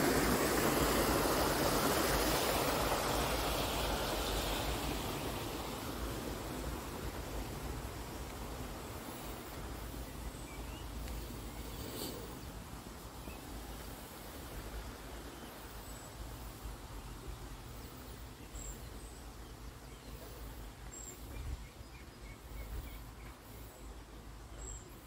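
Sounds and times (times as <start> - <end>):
faint bird chirps: 9.9 - 12.5.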